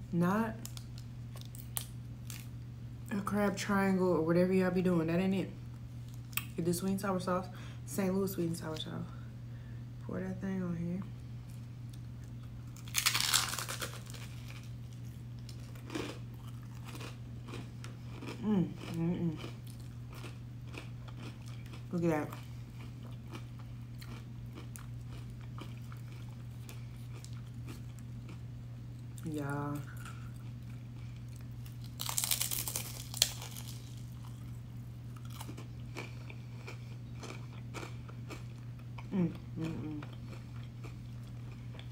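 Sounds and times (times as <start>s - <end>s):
chewing: 12.2s - 28.4s, 29.9s - 41.9s
fried food crunching when bitten: 12.4s - 28.4s, 30.0s - 41.9s
crunchy bite into fried food: 12.8s - 14.8s, 31.6s - 34.4s.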